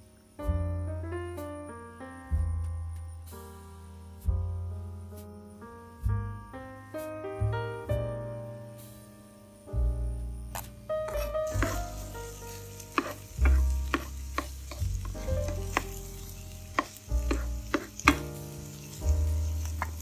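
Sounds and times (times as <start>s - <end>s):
food sizzling in a frying pan: 10.5s - 20.0s
utensil scraping pan: 10.6s - 20.0s.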